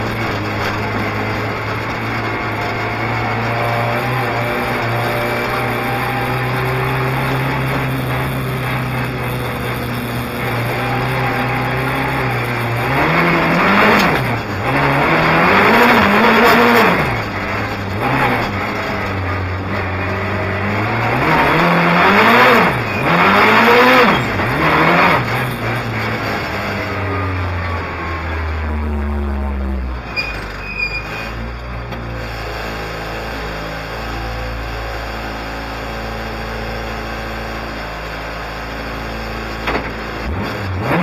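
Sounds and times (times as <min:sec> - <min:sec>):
rally car engine revving: 0:00.0 - 0:41.0
tyres squealing: 0:30.1 - 0:31.5.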